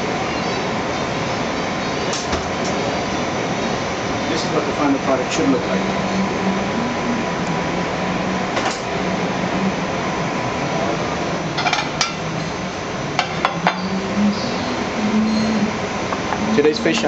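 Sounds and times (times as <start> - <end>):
kitchen hum: 0.0 - 17.0
plates clinking and clattering: 11.5 - 12.2, 13.2 - 14.0.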